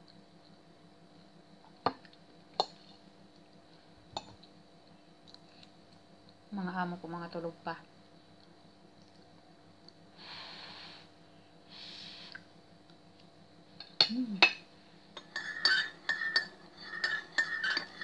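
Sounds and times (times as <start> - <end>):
fork clinking on a plate: 15.2 - 18.0.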